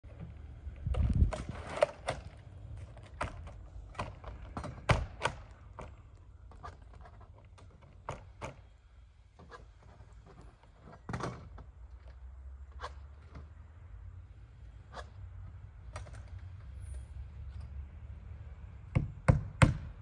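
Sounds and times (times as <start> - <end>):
vinyl siding knocking and clacking: 1.3 - 8.8.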